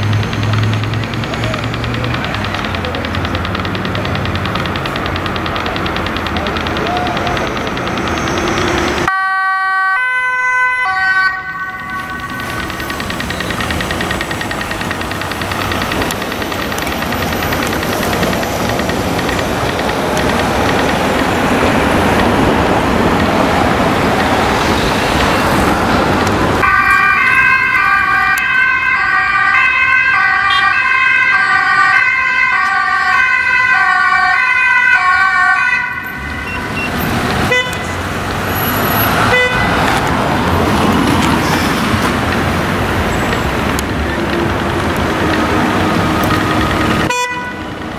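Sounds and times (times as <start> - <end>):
city traffic rush: 0.0 - 47.9
two-tone ambulance siren: 6.6 - 17.9, 26.5 - 38.0, 44.5 - 47.9.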